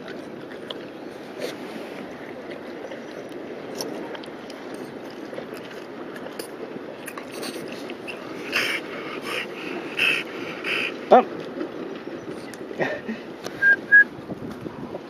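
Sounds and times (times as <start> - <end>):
steady background noise: 0.0 - 14.2
wet mouth clicks: 5.6 - 10.9
dog panting raspily: 7.4 - 11.0.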